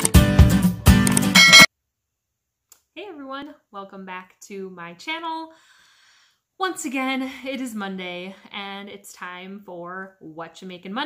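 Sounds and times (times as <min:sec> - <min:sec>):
jingle with strummed guitar chords: 0:00.0 - 0:01.7.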